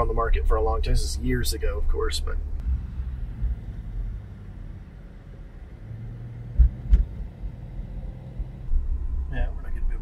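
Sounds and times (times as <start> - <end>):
road and engine rumble: 0.0 - 10.0
quick thumps: 6.5 - 7.2.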